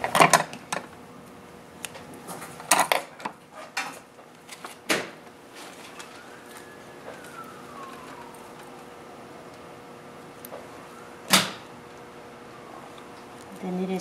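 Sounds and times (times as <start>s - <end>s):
faint siren: 5.4s - 14.0s.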